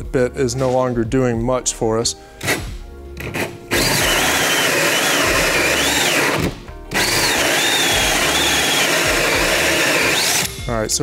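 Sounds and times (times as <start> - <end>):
drill cutting into wood: 3.2 - 10.6.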